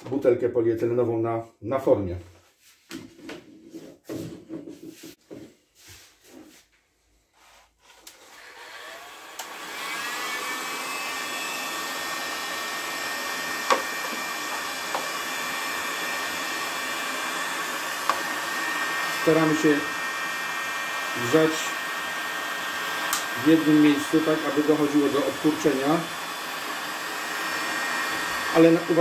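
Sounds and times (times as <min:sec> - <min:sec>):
knocks and rustles: 0:02.8 - 0:06.7
heat gun blowing: 0:08.0 - 0:29.0.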